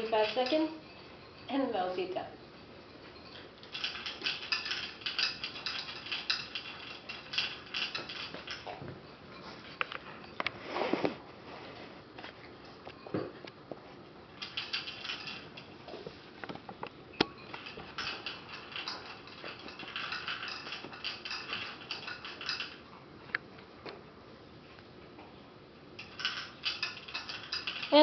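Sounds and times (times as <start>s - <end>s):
dogs eating from bowls: 0.0s - 1.6s, 2.9s - 10.6s, 14.2s - 16.3s, 17.4s - 23.0s, 26.0s - 28.0s.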